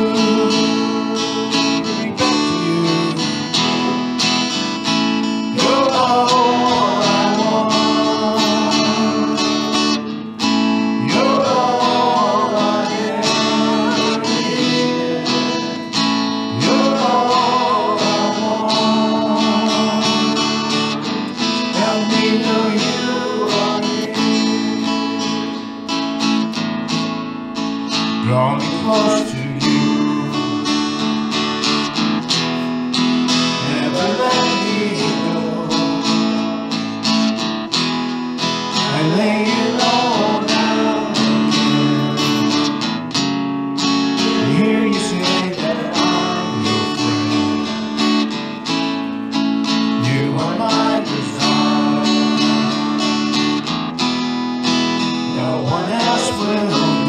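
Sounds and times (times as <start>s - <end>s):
person singing: 0.0s - 4.6s, 5.3s - 25.7s, 28.2s - 31.5s, 33.4s - 36.7s, 38.7s - 42.8s, 44.1s - 48.2s, 49.9s - 53.6s, 55.1s - 57.0s
acoustic guitar strumming: 0.0s - 57.0s.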